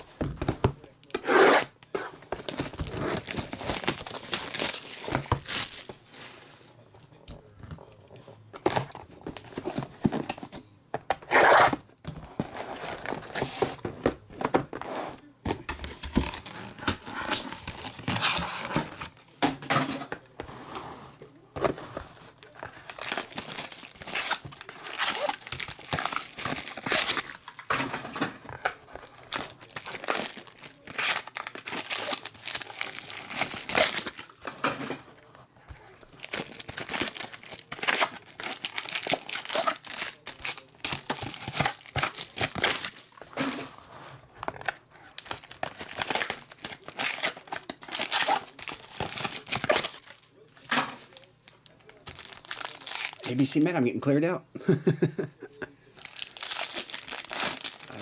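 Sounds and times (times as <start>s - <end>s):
plastic crinkling and rustling: 2.1s - 6.8s, 20.7s - 53.9s, 55.9s - 58.0s
plastic wrap ripping: 2.4s - 6.0s, 22.4s - 27.7s, 28.5s - 34.4s, 36.0s - 43.2s, 44.5s - 53.8s, 56.0s - 58.0s
box cutter slitting shrink wrap: 22.9s - 27.4s.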